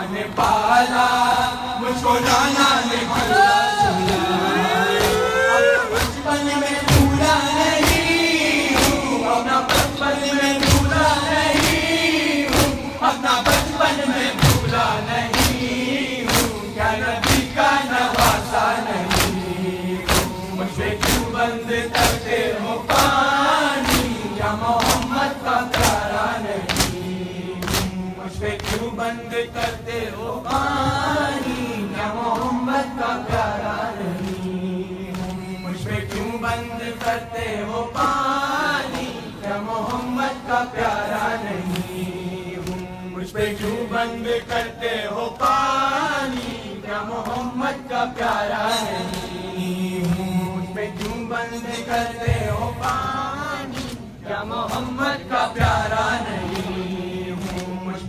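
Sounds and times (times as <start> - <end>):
crowd of men chanting: 0.0 - 58.0
hands slapping chests: 4.9 - 6.3, 6.9 - 31.6, 33.2 - 34.5, 35.1 - 35.5, 36.1 - 37.2, 50.9 - 57.9.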